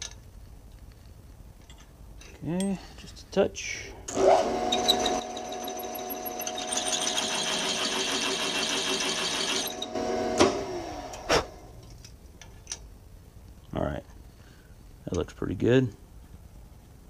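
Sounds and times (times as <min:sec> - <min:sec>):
drill whining and cutting: 0:04.1 - 0:11.8.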